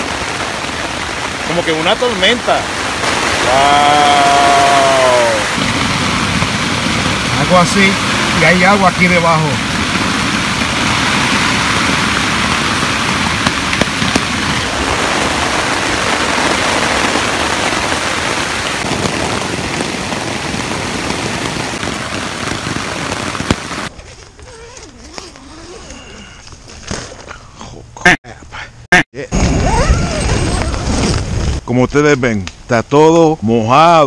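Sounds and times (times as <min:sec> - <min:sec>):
heavy rain on tent: 0:00.0 - 0:23.9
sharp raindrop hits: 0:00.0 - 0:23.9.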